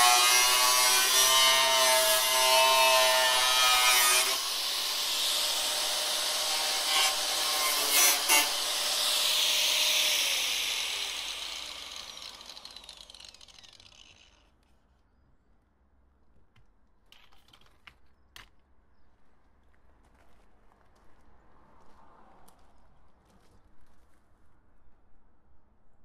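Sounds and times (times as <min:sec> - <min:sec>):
angle grinder cutting metal: 0:00.0 - 0:14.4.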